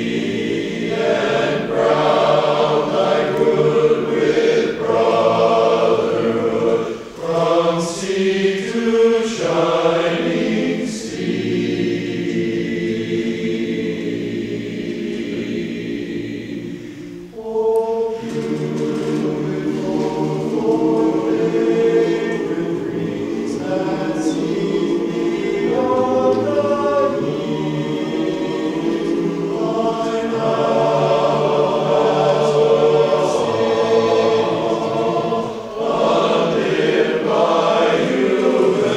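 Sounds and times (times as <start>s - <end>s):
men's chorus singing a cappella: 0.0s - 38.9s.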